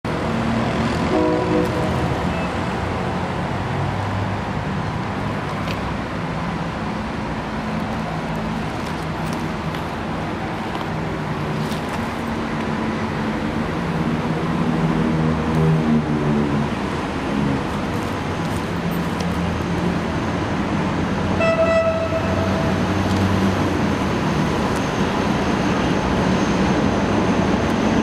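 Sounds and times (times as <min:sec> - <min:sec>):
diesel train engine running: 0:00.1 - 0:05.2.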